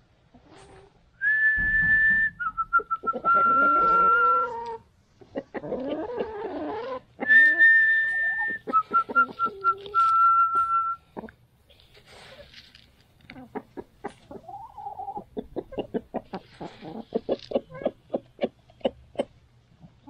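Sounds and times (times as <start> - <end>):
hens clucking: 0.2 - 1.0, 2.4 - 20.0
person whistling chicken call: 1.2 - 4.6, 7.2 - 11.1.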